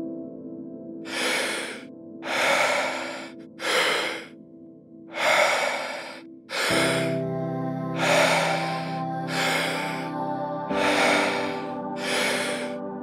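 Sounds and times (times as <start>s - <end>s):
ambient music with sustained tones: 0.0s - 13.0s
person breathing deeply: 1.1s - 4.3s, 5.1s - 7.2s, 7.9s - 10.1s, 10.7s - 12.8s.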